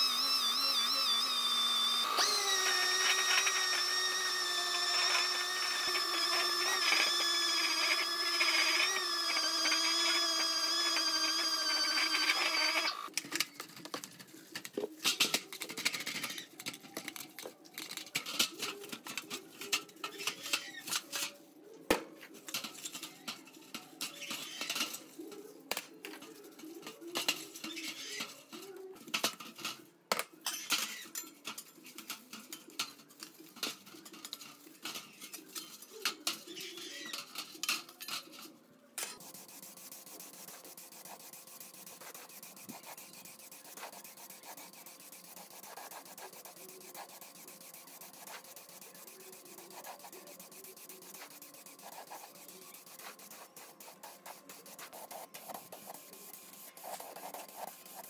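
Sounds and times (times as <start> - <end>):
sanding disc whining on steel: 0.0 - 13.1, 39.1 - 58.0
brush scrubbing metal part: 39.1 - 58.0.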